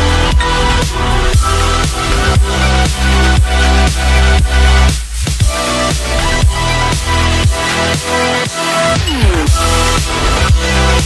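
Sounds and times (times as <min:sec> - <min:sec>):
kick drum beat: 0:00.3 - 0:07.7.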